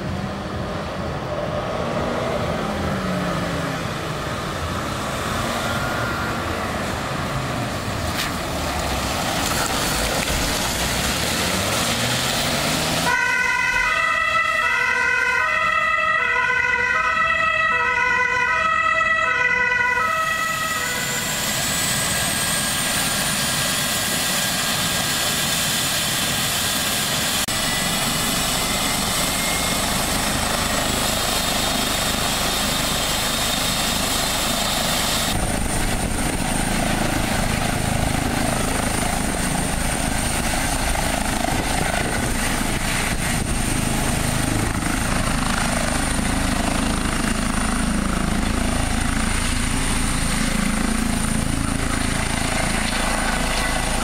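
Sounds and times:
helicopter turbine whine: 0:00.0 - 0:11.8, 0:19.8 - 0:54.0
ambulance engine running: 0:00.0 - 0:54.0
two-tone ambulance siren: 0:05.2 - 0:07.4, 0:13.0 - 0:22.9, 0:27.5 - 0:35.5.

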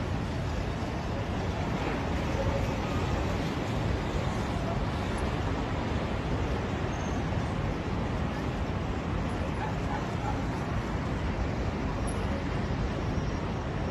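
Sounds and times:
road traffic rumble with hiss: 0:00.0 - 0:13.9.

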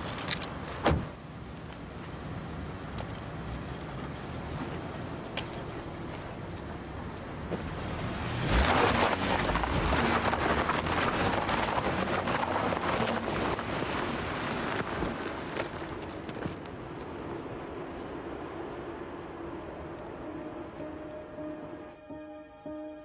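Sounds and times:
car engine pulling away: 0:07.5 - 0:15.9.

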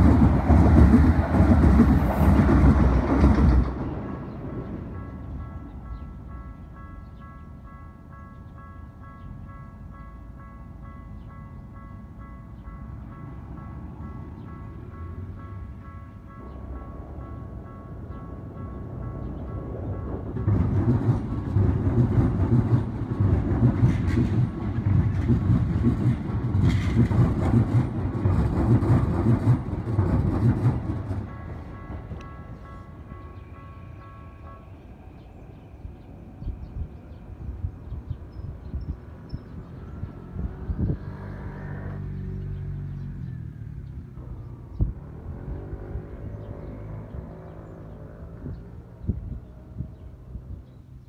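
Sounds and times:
train wheels rumbling on rails: 0:00.0 - 0:51.0
vehicle passing: 0:39.5 - 0:49.0.

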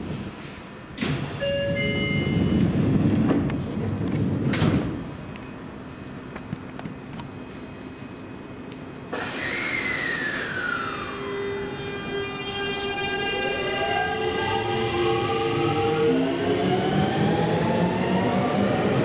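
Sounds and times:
train doors sliding shut: 0:00.0 - 0:05.3, 0:09.1 - 0:12.2
traction inverter whine: 0:09.1 - 0:19.0.

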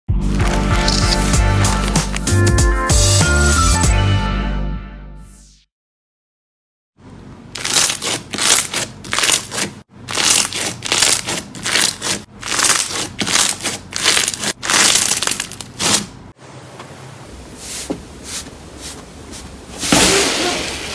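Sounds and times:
slime crackling and crunching: 0:00.3 - 0:02.3, 0:07.6 - 0:16.1.

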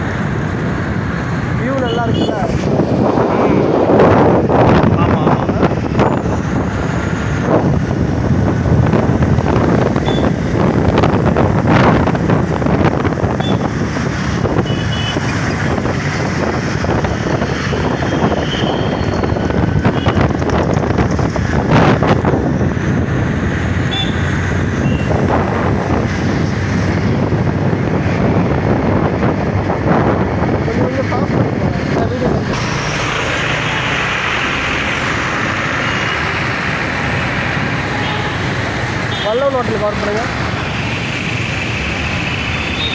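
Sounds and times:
traffic: 0:00.0 - 0:42.9
wind buffeting microphone: 0:02.3 - 0:33.6.

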